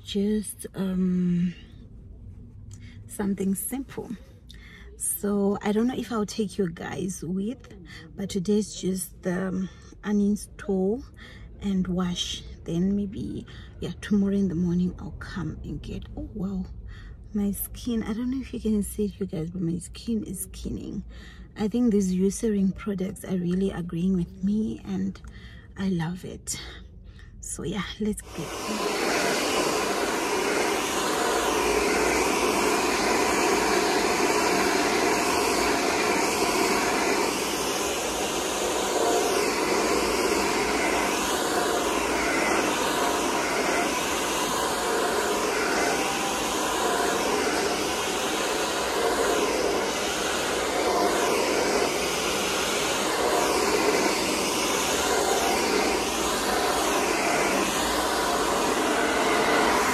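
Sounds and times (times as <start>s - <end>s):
hair dryer blowing: 28.2s - 59.9s.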